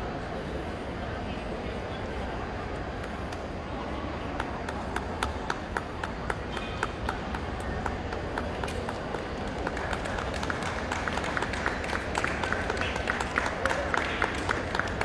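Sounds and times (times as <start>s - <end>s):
crowd murmur: 0.0s - 15.0s
spectators clapping along: 3.0s - 15.0s.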